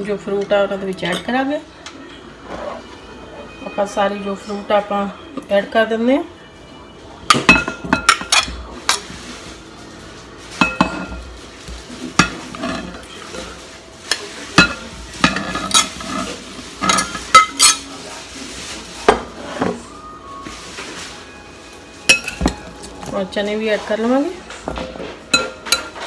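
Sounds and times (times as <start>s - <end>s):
spoon clinking on plate and bowl: 25.3s - 26.0s.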